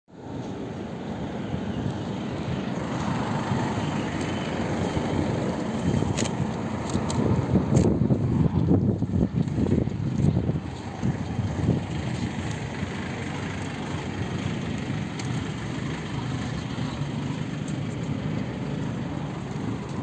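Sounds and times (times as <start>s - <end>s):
minibus engine idling: 0.2s - 20.0s.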